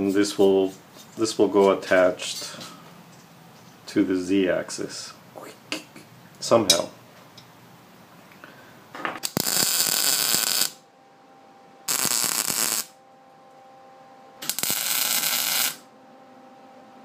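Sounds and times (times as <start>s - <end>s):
electric arc welding crackle: 9.2s - 10.8s, 11.9s - 13.0s, 14.4s - 15.9s.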